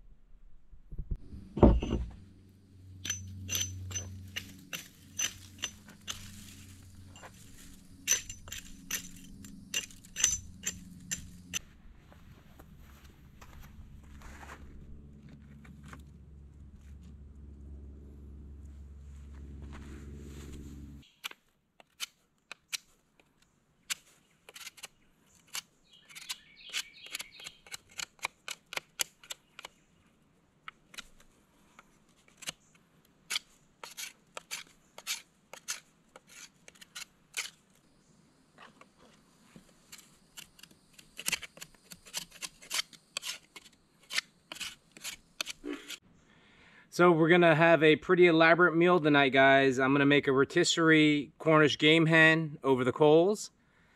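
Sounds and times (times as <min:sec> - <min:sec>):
low rumble: 0:00.0 - 0:21.0
knife scraping wood: 0:03.0 - 0:11.6, 0:23.9 - 0:29.8, 0:30.7 - 0:37.8, 0:38.6 - 0:46.0.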